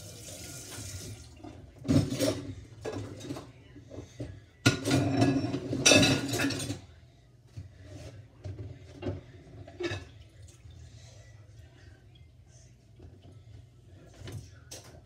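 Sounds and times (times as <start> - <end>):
water splashing in sink: 0.0 - 2.2
plates and pan clinking: 4.6 - 6.8.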